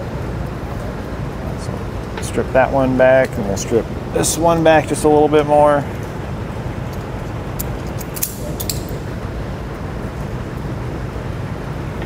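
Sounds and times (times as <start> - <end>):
steady background noise: 0.0 - 12.0
wire strippers clicking: 6.8 - 9.0.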